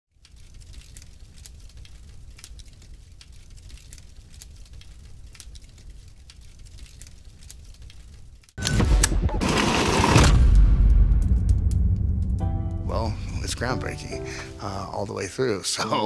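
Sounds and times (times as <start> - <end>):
faint fire crackles: 0.1 - 8.6, 9.5 - 16.0
fire rumbling: 0.1 - 8.6, 9.3 - 15.6
loud hit: 8.7 - 13.6.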